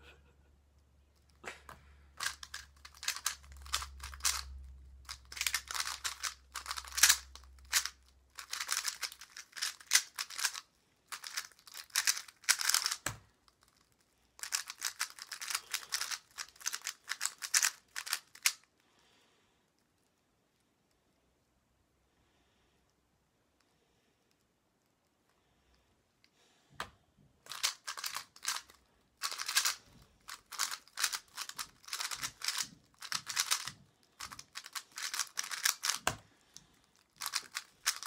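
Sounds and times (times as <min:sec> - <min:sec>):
plastic puzzle cube clicking: 0:02.2 - 0:18.8, 0:27.4 - 0:38.0.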